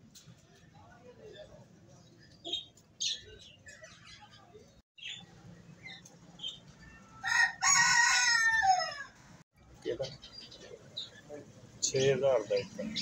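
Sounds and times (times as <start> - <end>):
rooster crowing: 7.0 - 9.4.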